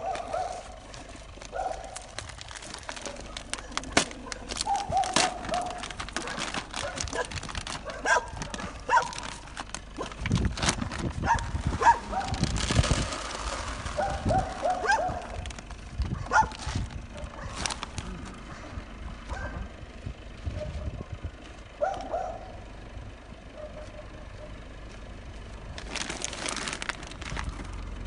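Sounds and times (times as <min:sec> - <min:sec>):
plastic sacks rustling: 0:00.0 - 0:18.3, 0:25.8 - 0:27.8.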